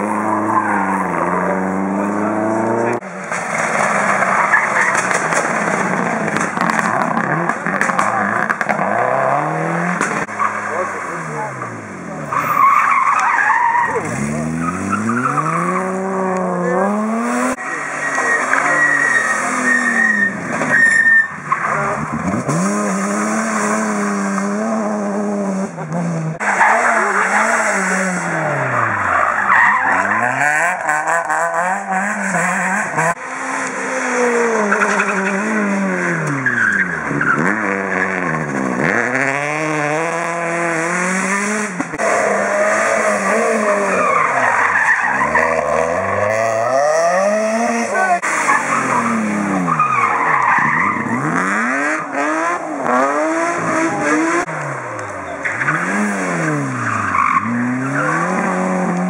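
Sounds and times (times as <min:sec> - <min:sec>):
rally car engines revving: 0:00.0 - 0:59.0
tyre squeal: 0:17.6 - 0:22.0.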